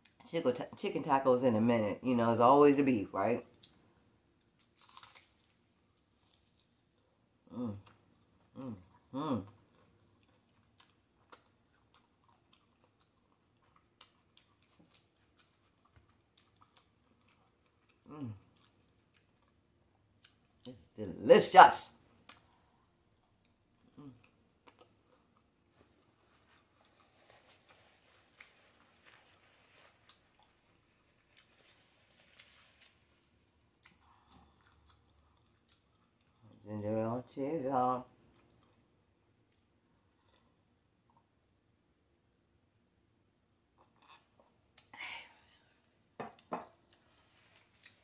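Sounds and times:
chewing crunchy taco: 4.4s - 20.9s, 22.2s - 36.7s, 38.2s - 41.3s, 43.7s - 44.9s, 46.4s - 48.0s.

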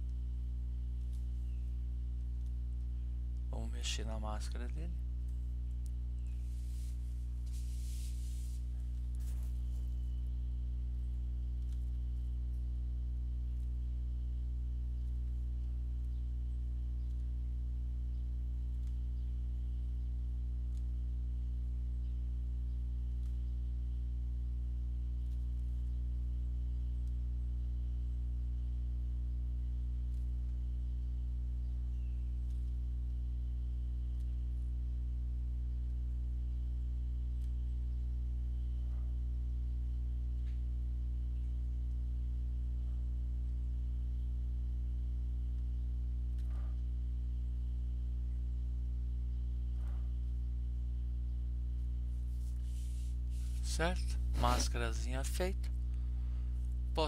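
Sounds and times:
low electrical hum: 0.0s - 57.0s
faint mouse clicks: 11.6s - 11.9s, 18.7s - 19.0s, 32.4s - 32.8s.

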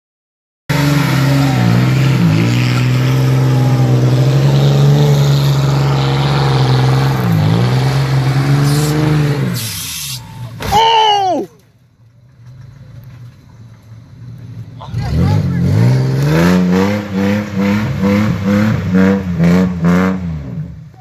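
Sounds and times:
truck engine revving hard: 0.7s - 10.5s, 14.8s - 20.8s.

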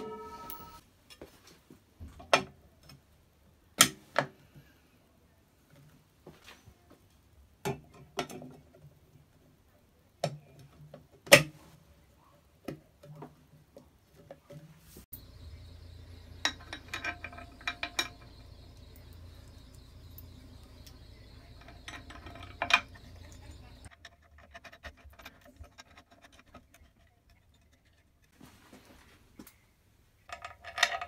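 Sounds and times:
faint steady hum: 15.1s - 23.9s
metal parts clicking and knocking: 15.4s - 28.3s, 30.3s - 31.0s.

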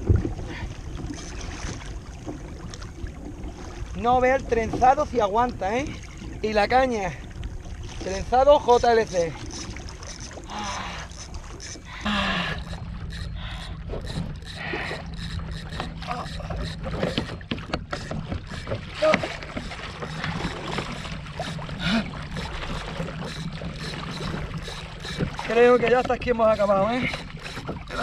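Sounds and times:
fishing tackle clicks and knocks: 12.6s - 28.0s
person grunting: 21.8s - 22.2s.

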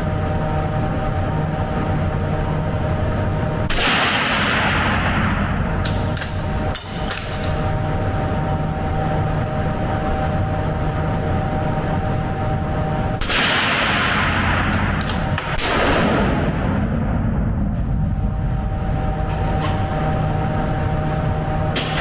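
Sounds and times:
rifle shot with echo: 3.7s - 5.4s, 13.2s - 14.7s, 15.4s - 16.8s.

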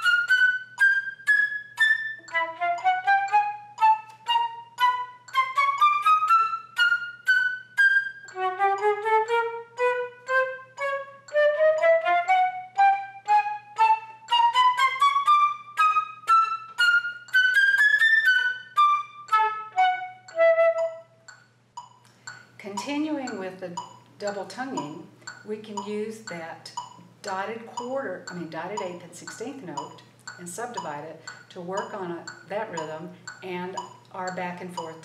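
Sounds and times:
solo flute playing: 0.0s - 21.2s.

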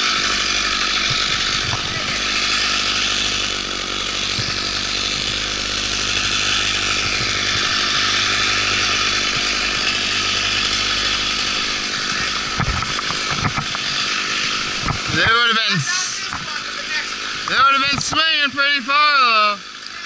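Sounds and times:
chainsaw running: 0.0s - 20.0s
sharp knocks: 0.8s - 3.5s, 4.2s - 10.1s, 12.0s - 14.1s.

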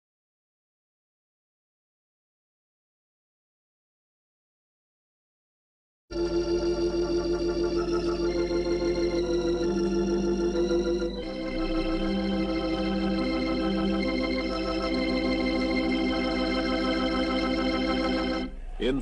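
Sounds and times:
organ playing sustained chords: 6.1s - 19.0s.

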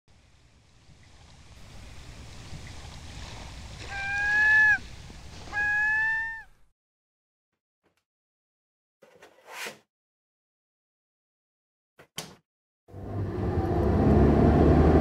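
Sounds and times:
soft waterside ambience: 0.1s - 6.7s
drawn-out animal calls: 3.8s - 6.6s.

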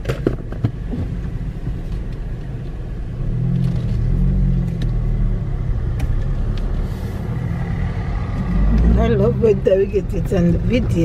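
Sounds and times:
road rumble inside car: 0.0s - 11.0s
car engine accelerating: 3.2s - 11.0s.

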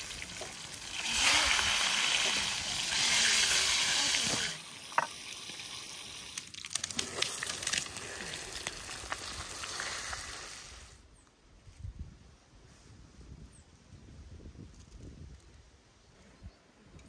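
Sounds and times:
fish sizzling in hot oil: 0.0s - 10.9s
oil spitting crackles: 0.0s - 11.0s.

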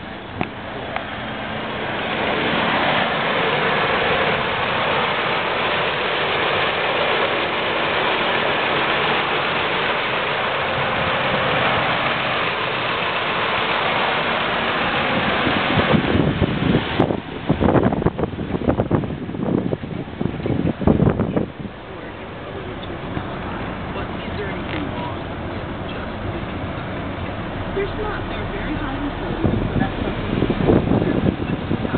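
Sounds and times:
car engine idling: 0.0s - 31.9s.

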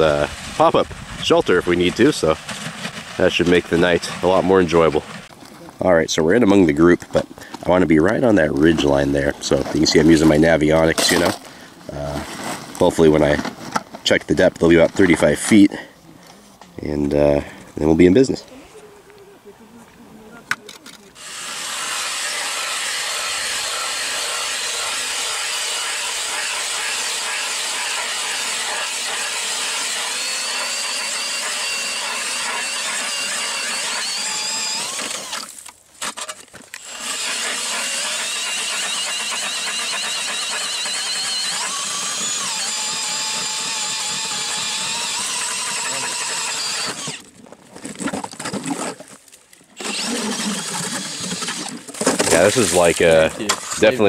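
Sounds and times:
power drill motor whine: 21.2s - 47.2s, 49.8s - 51.8s.

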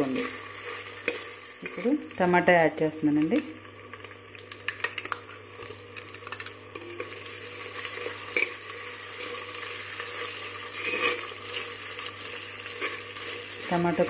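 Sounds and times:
tomatoes sizzling in hot oil: 0.0s - 14.0s
metal spoon scraping a pot: 9.2s - 12.1s, 12.7s - 13.4s.

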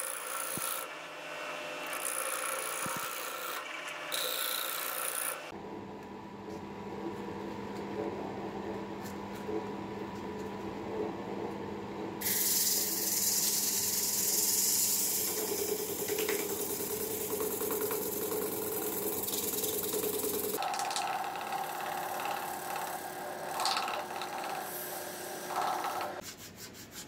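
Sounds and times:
wood lathe motor humming: 0.0s - 5.5s, 13.6s - 26.2s
sandpaper sanding wood: 12.4s - 20.6s, 24.3s - 27.0s.

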